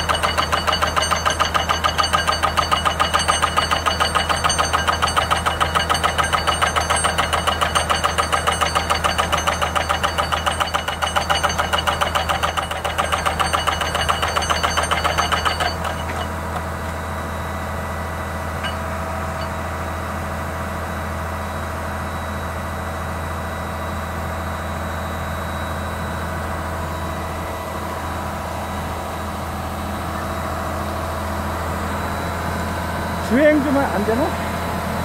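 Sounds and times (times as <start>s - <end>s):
rock drill hammer pounding: 0.0s - 17.0s, 18.6s - 19.6s
diesel engine idling: 15.1s - 35.0s.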